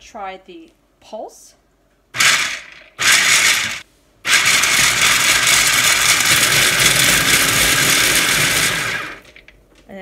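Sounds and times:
food processor motor whirring: 0:02.2 - 0:09.4.

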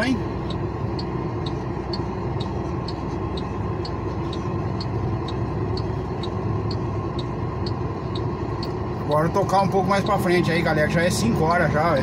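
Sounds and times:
light regular ticking: 0:00.0 - 0:11.4
diesel truck engine running: 0:00.0 - 0:12.0.

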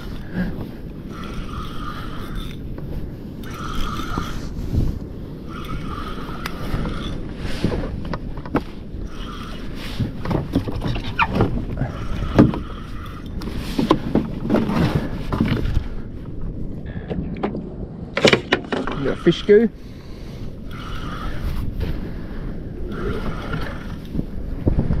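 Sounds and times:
fishing reel whirring: 0:01.0 - 0:02.7, 0:03.3 - 0:04.6, 0:05.4 - 0:07.3, 0:09.0 - 0:09.8, 0:11.8 - 0:13.5, 0:20.5 - 0:21.6, 0:22.8 - 0:24.2.

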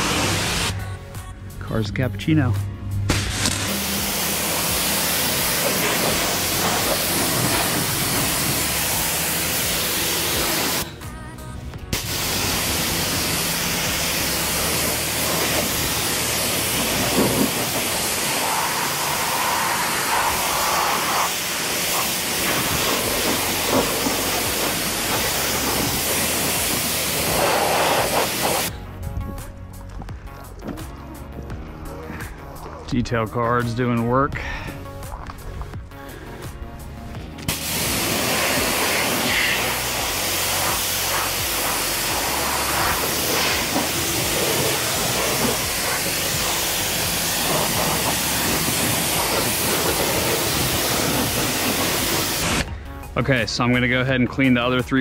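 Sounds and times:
pressure washer spraying: 0:00.0 - 0:00.8, 0:03.1 - 0:11.2, 0:11.8 - 0:28.8, 0:37.4 - 0:52.7.

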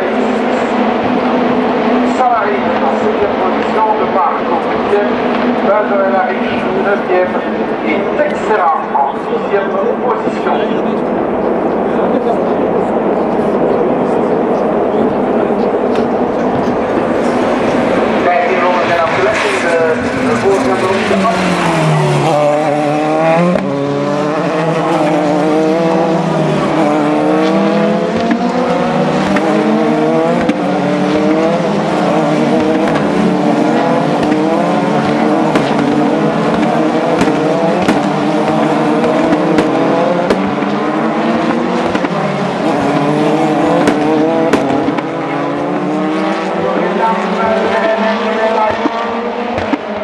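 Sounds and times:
race car engines passing: 0:00.0 - 0:50.0.

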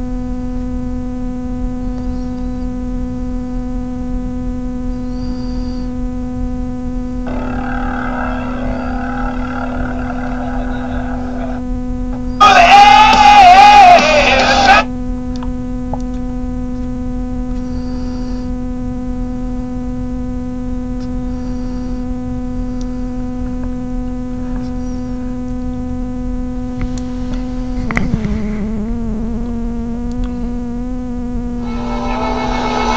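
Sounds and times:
electrical hum: 0:00.0 - 0:32.9
person singing: 0:07.3 - 0:11.6, 0:12.4 - 0:14.9, 0:31.6 - 0:32.9.

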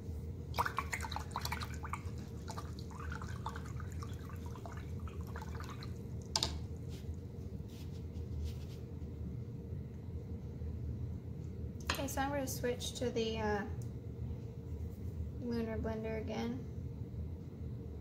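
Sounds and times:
water splashing and dripping: 0:00.6 - 0:06.6.

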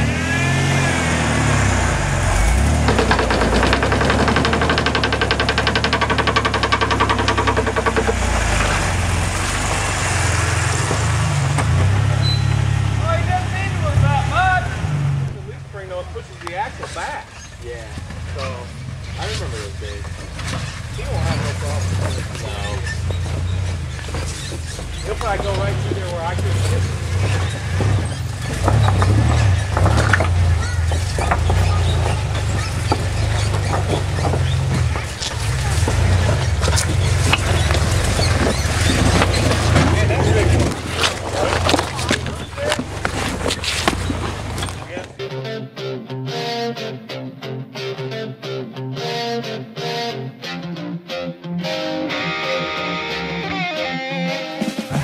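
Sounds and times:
engine running under load: 0:00.0 - 0:45.2
rapid even knocking: 0:02.2 - 0:12.2, 0:19.2 - 0:45.2.

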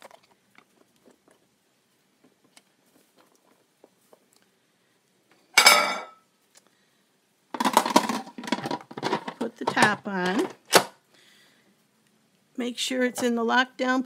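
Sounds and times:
metal lid clanking: 0:05.6 - 0:06.2
metal lid clattering on pot: 0:05.6 - 0:06.2.

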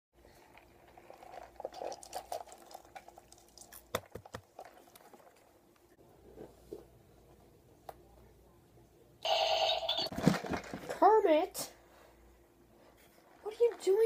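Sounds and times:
chewing and crunching food: 0:00.2 - 0:05.9.

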